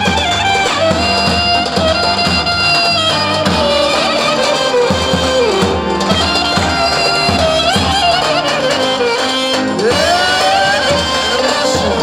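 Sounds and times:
steady drum beat: 0.0 - 12.0
wavering lead melody: 0.0 - 12.0.

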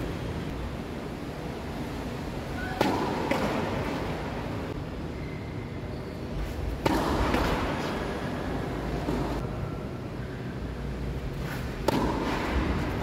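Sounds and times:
low background noise: 0.0 - 13.0
tennis ball impacts: 2.6 - 4.5, 6.7 - 9.5, 11.4 - 13.0.

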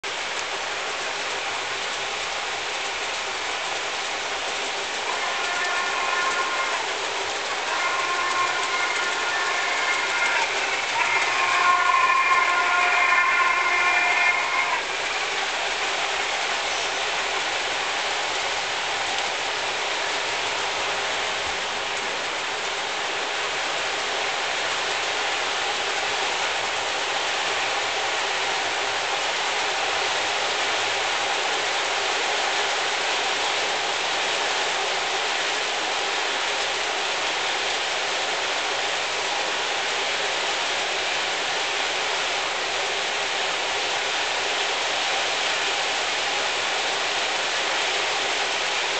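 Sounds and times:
model train wheels rolling on rails: 4.9 - 15.9
train whistle: 5.0 - 15.6.

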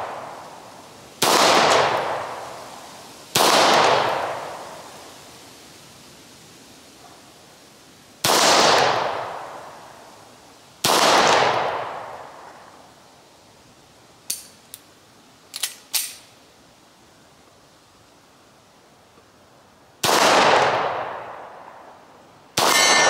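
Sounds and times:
small sharp clicks and knocks: 14.2 - 14.9, 15.5 - 16.3
pistol shots echoing: 22.6 - 23.0.

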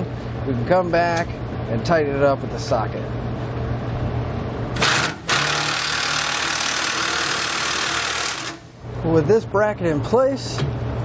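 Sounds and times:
cordless power tool driving bolts: 4.8 - 8.6.

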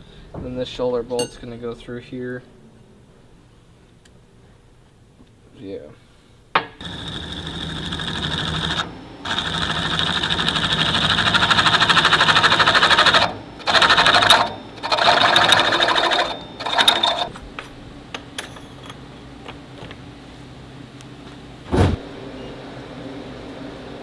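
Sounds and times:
low machine hum: 0.0 - 24.0
drill bit grinding into metal: 6.8 - 17.4.

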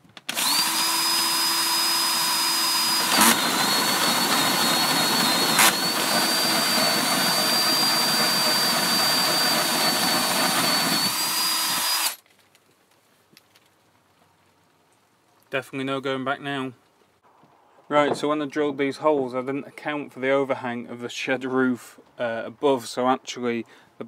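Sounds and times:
drill hole saw cutting wood: 0.3 - 12.2.

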